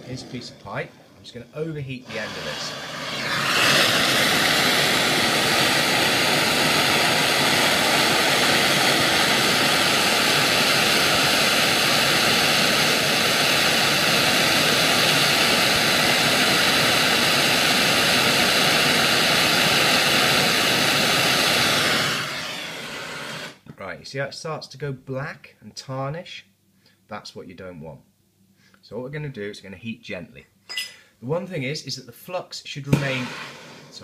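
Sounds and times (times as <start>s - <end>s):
blowlamp flame hissing: 0.0s - 23.6s, 32.9s - 34.0s.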